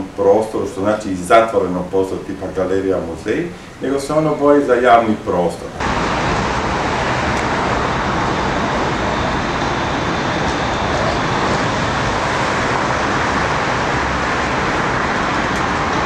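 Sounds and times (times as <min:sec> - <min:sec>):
city street traffic: 0:05.7 - 0:16.0.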